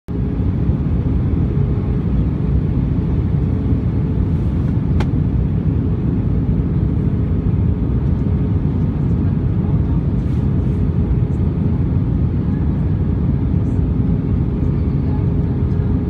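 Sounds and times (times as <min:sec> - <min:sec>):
aircraft cabin engine rumble: 0:00.1 - 0:16.0.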